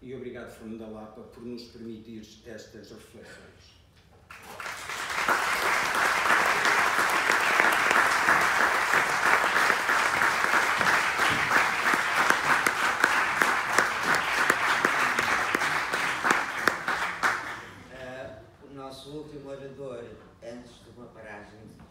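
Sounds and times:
audience applauding: 0:04.3 - 0:17.9.

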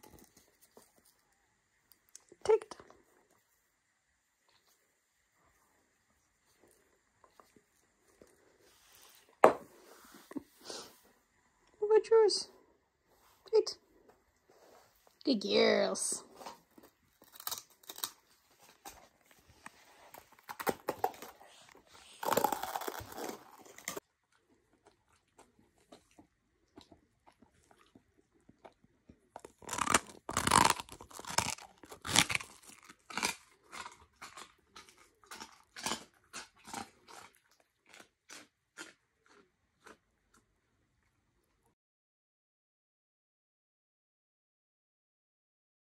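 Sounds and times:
dog chewing: 0:16.4 - 0:40.4
sharp crunches: 0:29.4 - 0:34.4.

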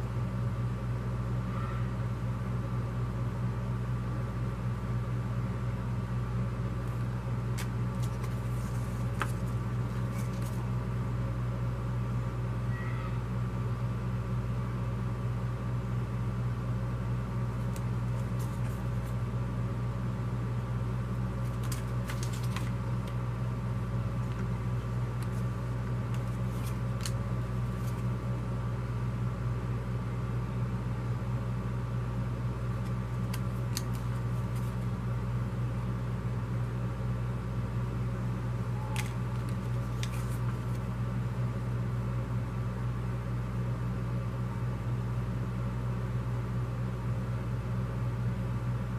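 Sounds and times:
low machine hum: 0:00.0 - 0:48.9
paper flyers rustling: 0:06.8 - 0:10.7, 0:17.5 - 0:19.2, 0:21.4 - 0:23.2, 0:25.2 - 0:28.1, 0:32.8 - 0:34.8, 0:39.0 - 0:40.9.

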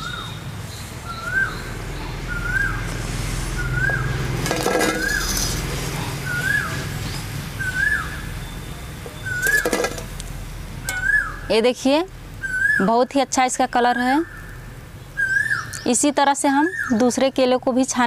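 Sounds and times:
skimmer clinking on steel: 0:09.4 - 0:10.2, 0:10.9 - 0:11.2
bird call rising and falling: 0:10.8 - 0:11.5.

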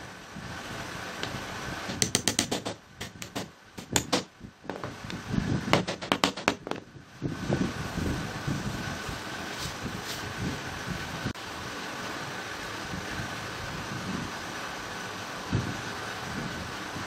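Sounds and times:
hammer tapping nails into wood: 0:01.2 - 0:05.0, 0:05.8 - 0:06.8.

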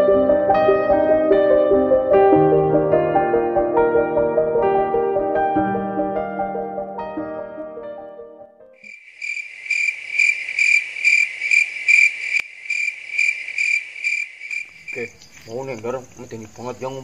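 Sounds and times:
soft piano music: 0:00.0 - 0:08.8
crickets chirping: 0:08.8 - 0:17.0
high fast cricket trill: 0:08.8 - 0:17.0.

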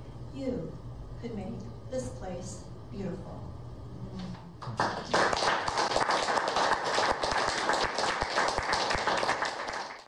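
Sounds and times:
audience applauding: 0:04.6 - 0:10.0.

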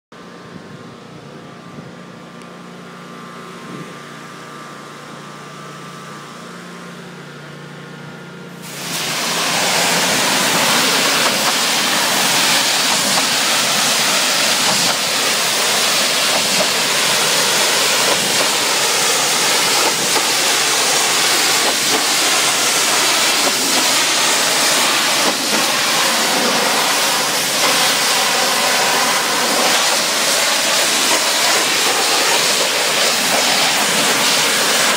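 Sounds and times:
pressure washer motor humming: 0:00.2 - 0:34.9
high-pressure spray hissing: 0:08.6 - 0:34.9.

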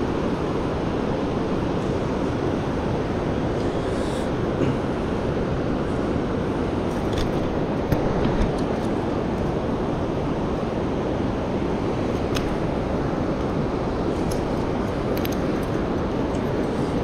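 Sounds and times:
river current rushing: 0:00.0 - 0:17.0.

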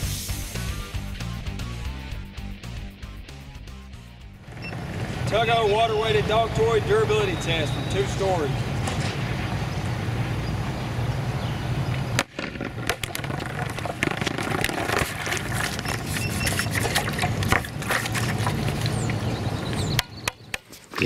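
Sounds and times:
plastic ball knocking on asphalt: 0:12.2 - 0:17.8.

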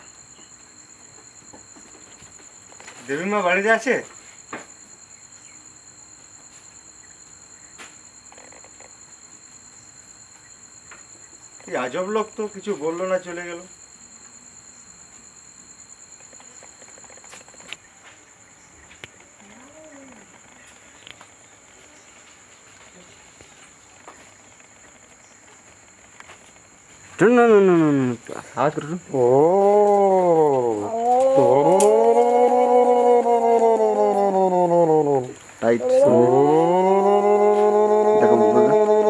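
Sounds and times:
crickets chirring: 0:00.0 - 0:39.0.

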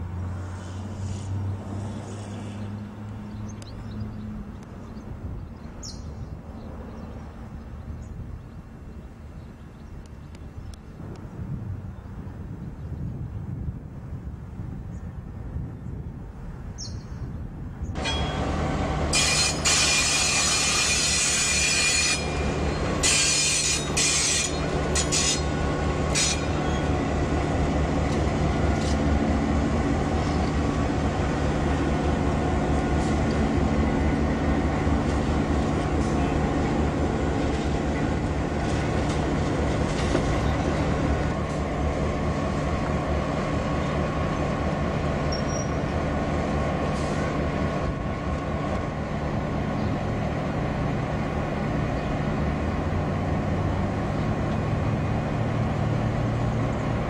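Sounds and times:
diesel locomotive engine drone: 0:00.0 - 0:57.0
loud high-pitched squealing: 0:18.0 - 0:27.0.

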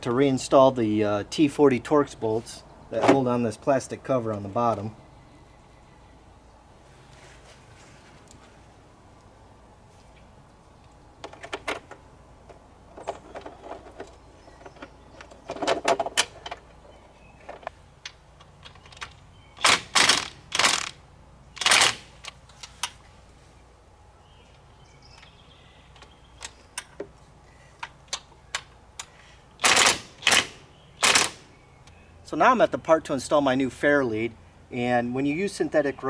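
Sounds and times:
power tool clattering bursts: 0:19.6 - 0:21.0, 0:29.6 - 0:31.4.

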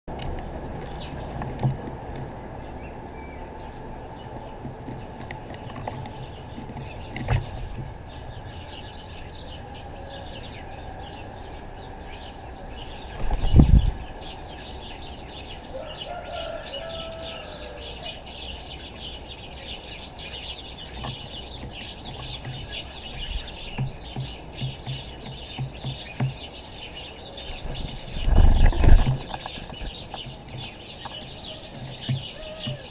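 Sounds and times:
wing flaps: 0:27.6 - 0:30.7.

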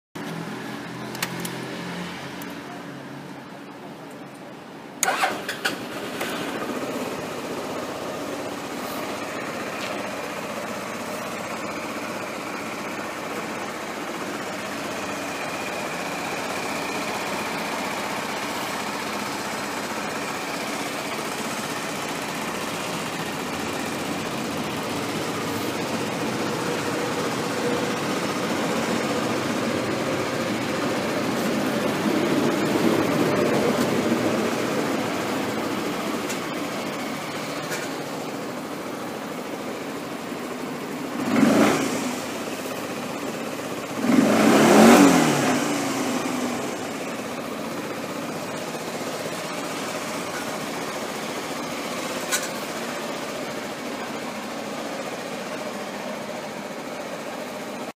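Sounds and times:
scooter engine idling: 0:04.5 - 0:57.9
scooter starter: 0:05.0 - 0:06.8.

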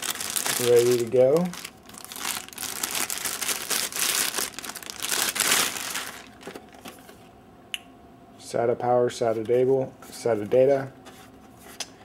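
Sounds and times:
plastic bag crinkling: 0:00.0 - 0:06.7.

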